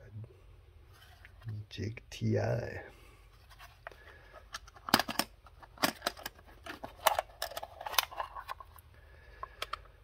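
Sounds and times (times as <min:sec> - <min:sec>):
plastic case latches clicking: 0:04.5 - 0:08.6.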